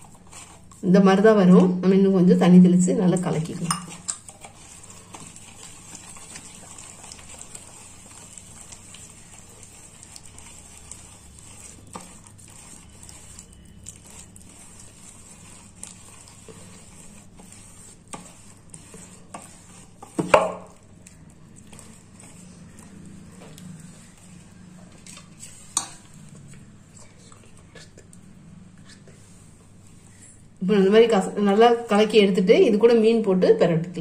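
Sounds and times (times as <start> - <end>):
hand squelching wet paste: 3.1 - 30.2.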